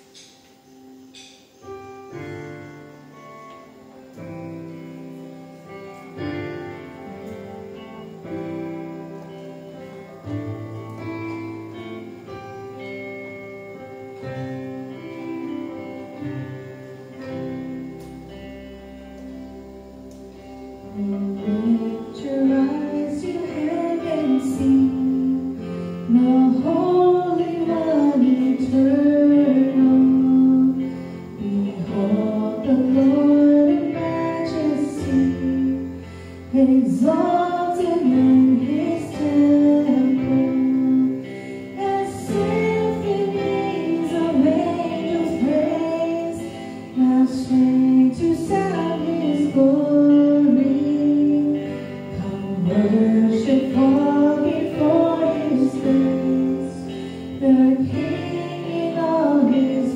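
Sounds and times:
guitar and sustained chords: 0:00.0 - 0:59.9
person singing melody: 0:00.0 - 0:59.9.

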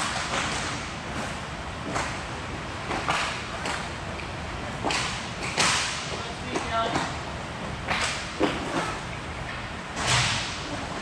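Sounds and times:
steady background noise: 0:00.0 - 0:11.0
hockey sticks clacking on puck: 0:04.8 - 0:07.2.

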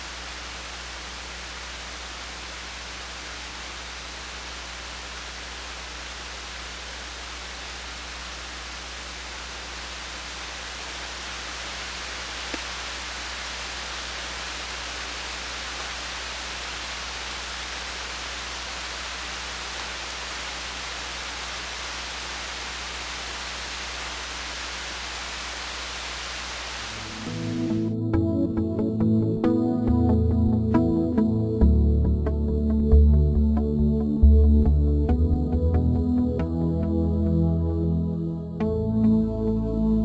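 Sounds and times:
rain falling: 0:00.0 - 0:27.9
faint click: 0:12.5 - 0:12.7.

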